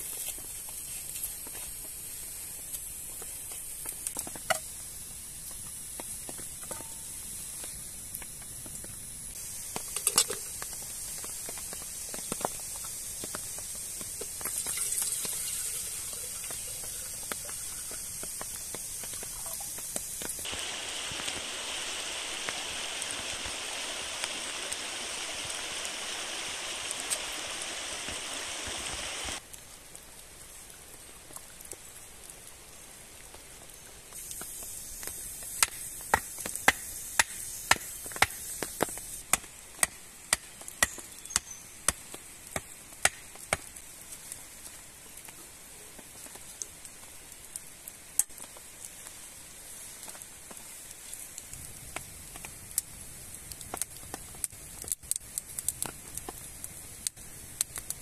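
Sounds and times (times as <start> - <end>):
water pouring into metal kettle: 14.5 - 18.0.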